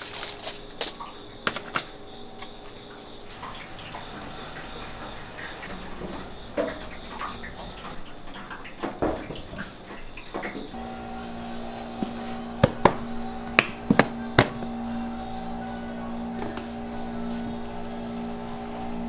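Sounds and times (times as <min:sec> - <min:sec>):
aluminium foil crinkling: 0:00.0 - 0:03.7
kitchen utensils clinking: 0:00.0 - 0:19.0
tray knocking on metal tray: 0:12.6 - 0:13.0.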